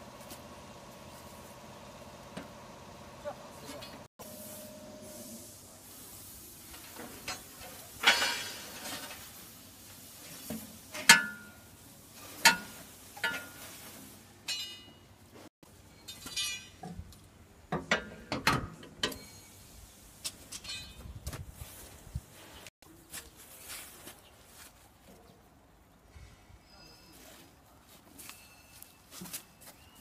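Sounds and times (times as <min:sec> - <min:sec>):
wire clinking and scraping on metal: 0:06.7 - 0:09.4, 0:12.2 - 0:13.8, 0:14.4 - 0:15.0, 0:15.8 - 0:17.1, 0:19.0 - 0:21.2.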